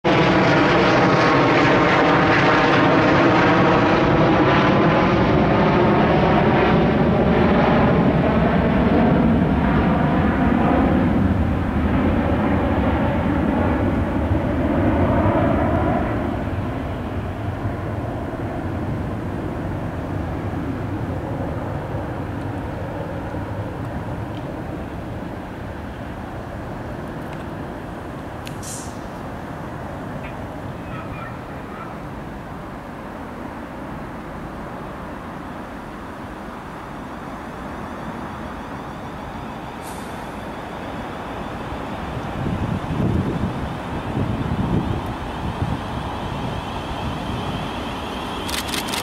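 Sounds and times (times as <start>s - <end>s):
aircraft engines overhead: 0.0s - 49.0s.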